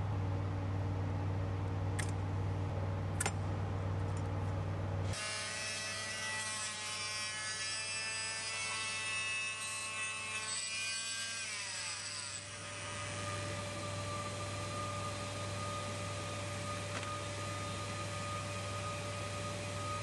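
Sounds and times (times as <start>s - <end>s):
low steady hum: 0.0s - 5.2s.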